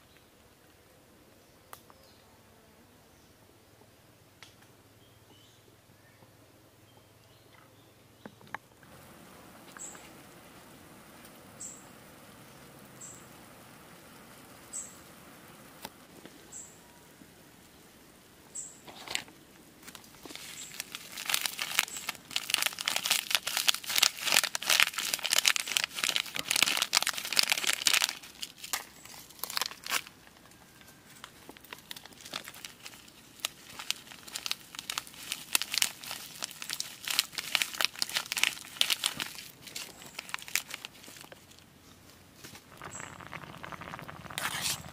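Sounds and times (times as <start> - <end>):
plastic packet crinkling: 18.9 - 30.4, 31.5 - 41.6, 42.6 - 44.9.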